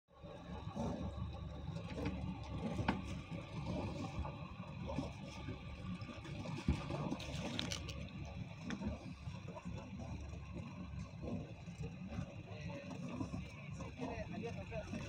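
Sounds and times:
boat engine idling: 0.2s - 15.0s
water sloshing against boat hull: 0.7s - 15.0s.

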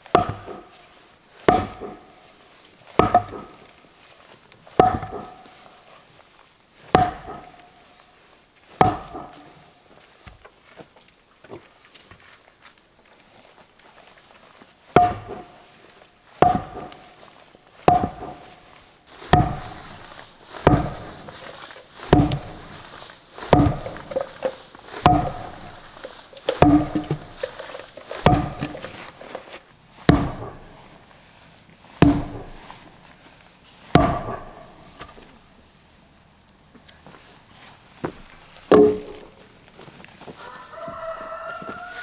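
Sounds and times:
heavy blows on wood: 1.4s - 2.2s, 2.9s - 3.7s, 4.7s - 5.6s, 6.9s - 7.8s, 8.8s - 9.6s, 14.9s - 15.8s, 16.4s - 30.9s, 32.0s - 32.8s, 33.9s - 34.9s, 38.1s - 39.4s.

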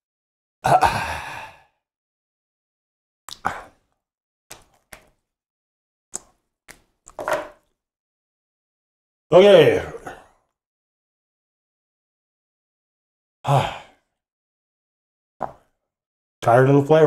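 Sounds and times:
man exhaling heavily: 0.7s - 1.7s, 13.5s - 14.0s.

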